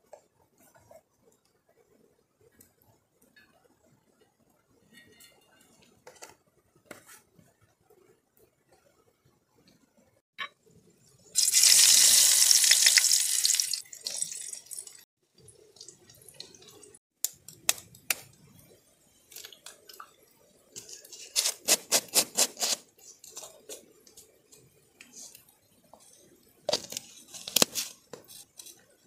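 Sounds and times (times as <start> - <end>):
hot oil sizzling in pan: 11.4 - 15.0.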